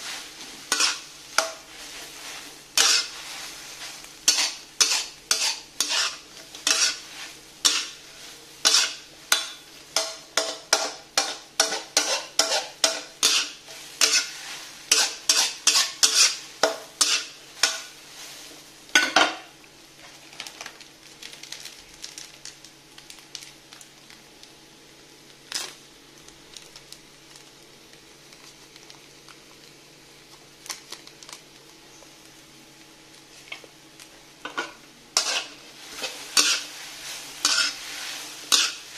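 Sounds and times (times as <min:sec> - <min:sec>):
faint steady hum: 0:00.0 - 0:38.9
utensil knocking and scraping a pan: 0:02.8 - 0:03.2, 0:04.3 - 0:07.0, 0:08.6 - 0:17.9, 0:35.2 - 0:36.7, 0:37.4 - 0:37.8, 0:38.5 - 0:38.8.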